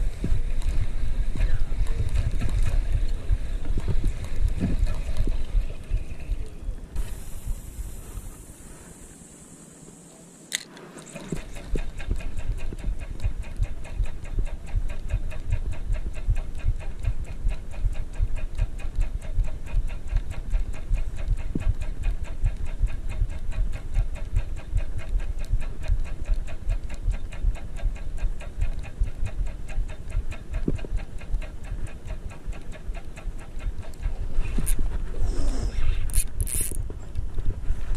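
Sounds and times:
sharp click: 10.5 - 15.6, 36.1 - 36.8
fishing reel cranking ticking: 11.6 - 34.8, 35.8 - 36.9.

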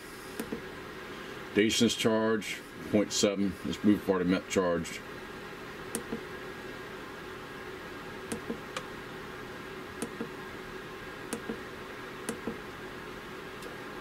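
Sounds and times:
steady hum: 0.0 - 14.0
push buttons clicking: 8.3 - 8.9.

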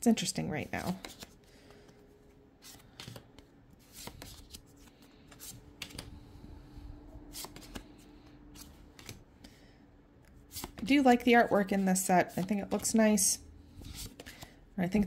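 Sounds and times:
cards sliding off a stack: 2.6 - 6.1, 7.3 - 9.6.

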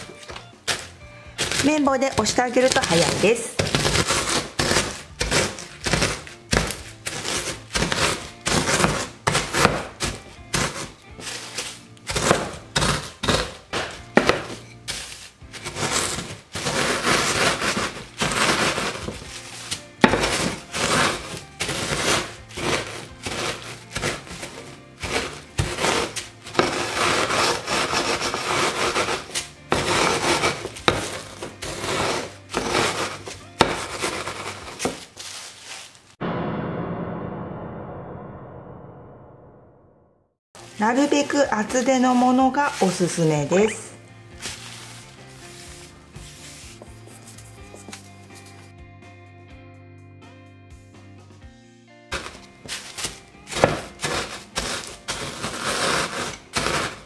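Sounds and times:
background music: 0.0 - 35.2, 40.6 - 57.0
rolling pin crushing biscuits in bag: 0.0 - 36.2, 52.1 - 57.0.

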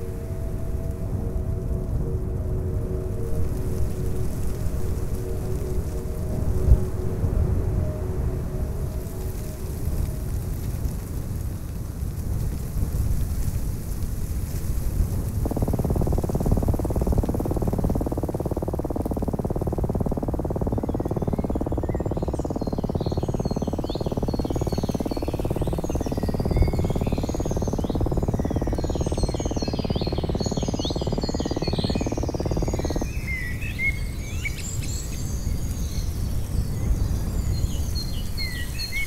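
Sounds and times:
sweeping low noisy drone: 0.0 - 39.0
high insect trill: 14.2 - 39.0
birdsong: 15.5 - 39.0.

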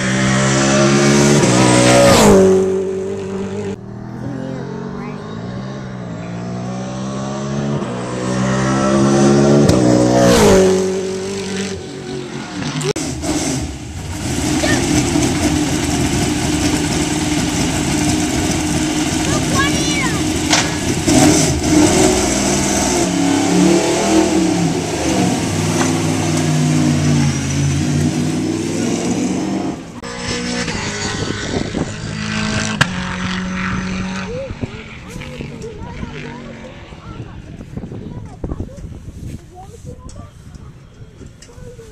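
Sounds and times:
race car engine passing by: 0.0 - 38.1.

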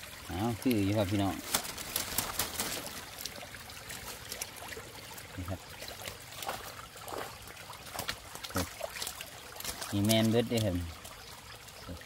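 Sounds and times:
small splashes: 0.0 - 12.0
water trickling and dripping: 0.0 - 12.0
netting rustling: 1.4 - 3.2.

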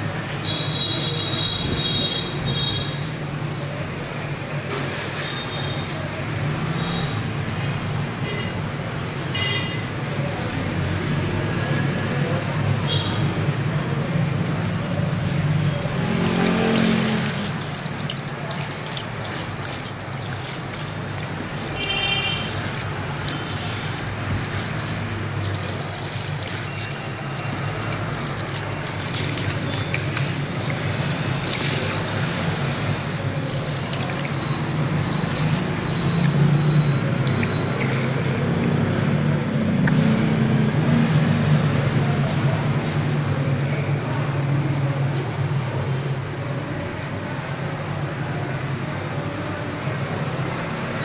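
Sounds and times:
hands scrubbing wet hair: 15.8 - 39.2
water trickling: 15.8 - 40.0.

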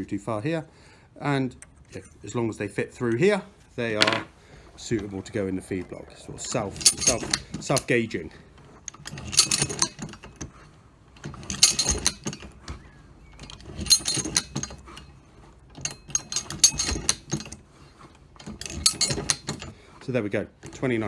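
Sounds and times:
brass cartridges clattering: 3.9 - 4.3, 6.5 - 7.9, 15.8 - 17.6
pawls and gears clicking: 4.8 - 21.0.

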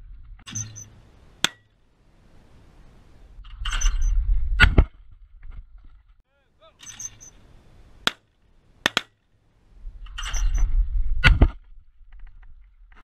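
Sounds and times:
wind buffeting microphone: 2.6 - 6.2, 9.7 - 13.0.

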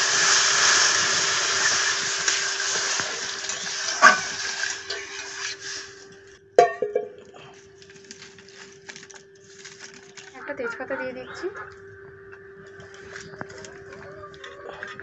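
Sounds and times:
water hissing in hot pan: 0.0 - 6.4
metallic clank with ring: 6.6 - 7.2.

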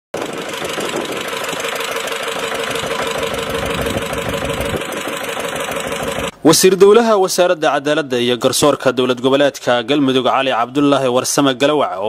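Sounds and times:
engine running with hum: 0.2 - 6.3.

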